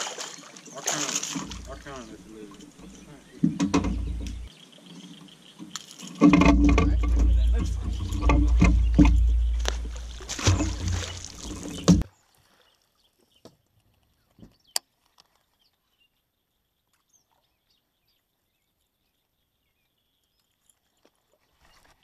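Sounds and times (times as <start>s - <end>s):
water splashing: 0.0s - 4.5s, 5.6s - 13.0s
faint clicks: 1.4s - 4.5s
loud thump: 6.2s - 12.1s.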